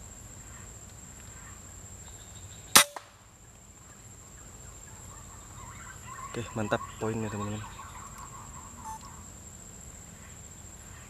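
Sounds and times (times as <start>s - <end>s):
air rifle shot: 2.8s - 3.2s.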